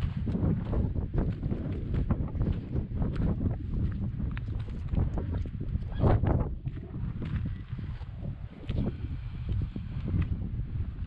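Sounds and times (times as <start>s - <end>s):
footsteps on rock and gravel: 0.0s - 11.0s
wind buffeting microphone: 0.0s - 11.0s.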